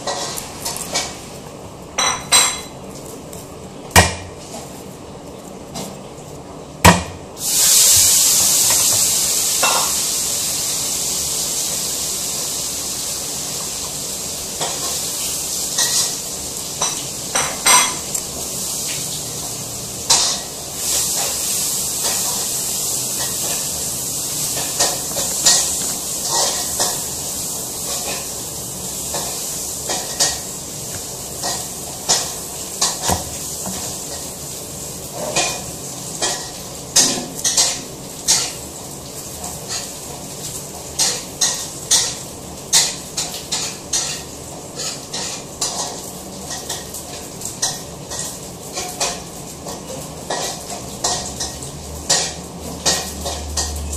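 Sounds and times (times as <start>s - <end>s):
garlic skins crackling and rustling: 0.0s - 1.9s, 2.7s - 6.7s, 20.2s - 35.1s
steady hiss: 7.3s - 43.6s.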